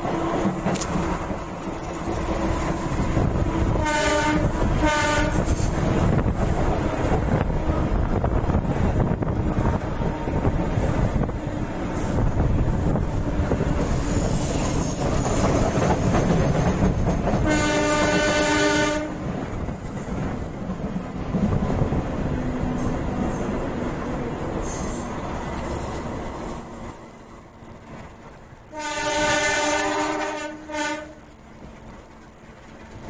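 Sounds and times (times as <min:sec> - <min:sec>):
train wheels clickety-clack: 0:00.0 - 0:33.0
locomotive air horn blasts: 0:03.8 - 0:05.7, 0:17.4 - 0:19.2, 0:28.7 - 0:31.2.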